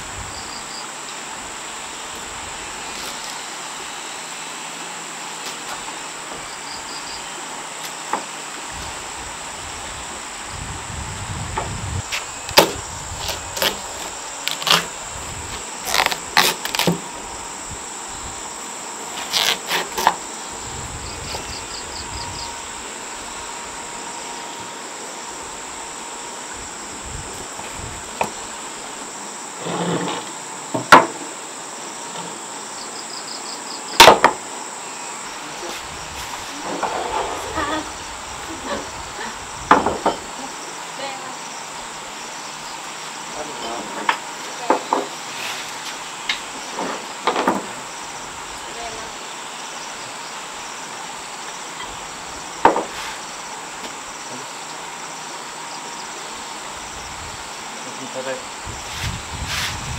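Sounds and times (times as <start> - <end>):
insects droning: 0.0 - 59.9
knife cutting watermelon: 12.6 - 15.0, 15.8 - 17.0, 19.1 - 20.2.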